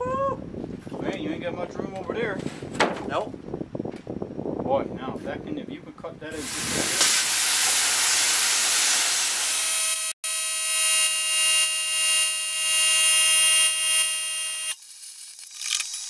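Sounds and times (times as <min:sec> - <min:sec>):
plasma cutter air rush: 0:06.4 - 0:10.2
plasma cutter whine: 0:06.4 - 0:16.0.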